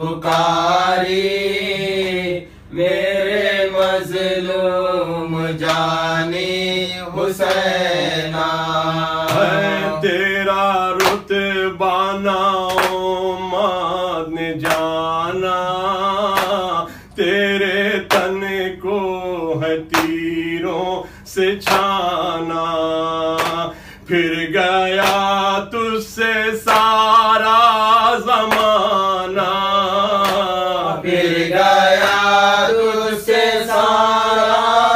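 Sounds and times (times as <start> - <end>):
men chanting a slow lament: 0.0 - 34.9
sharp hand slaps: 0.3 - 0.5, 5.6 - 5.9, 7.4 - 7.8, 9.2 - 9.9, 11.0 - 11.4, 12.6 - 13.1, 14.6 - 15.0, 16.3 - 16.7, 18.1 - 18.4, 19.9 - 20.2, 21.6 - 22.0, 23.4 - 23.7, 25.0 - 25.4, 26.7 - 27.0, 28.5 - 28.9, 30.2 - 30.6, 32.0 - 32.3.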